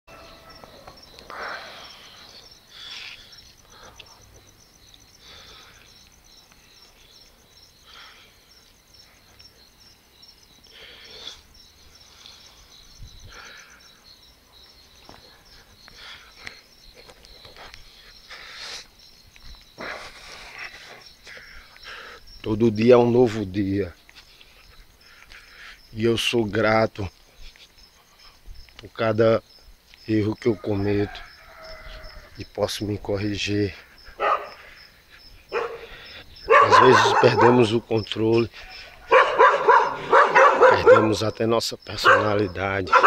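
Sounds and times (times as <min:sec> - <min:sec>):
crickets chirping: 0:00.1 - 0:43.0.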